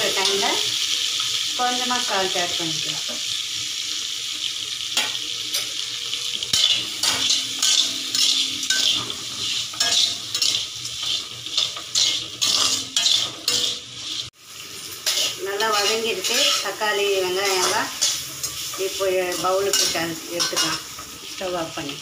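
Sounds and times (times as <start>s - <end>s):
vegetables sizzling in oil: 0.0s - 22.0s
steel spatula scraping pan: 6.5s - 21.1s.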